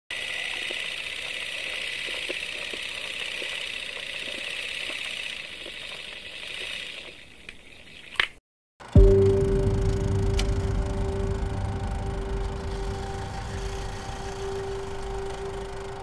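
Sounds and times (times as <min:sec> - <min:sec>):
film projector whir and hiss: 0:00.1 - 0:07.4.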